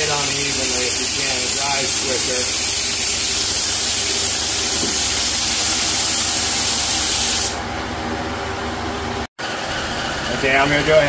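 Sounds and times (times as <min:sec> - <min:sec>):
spray gun hissing: 0:00.0 - 0:07.6.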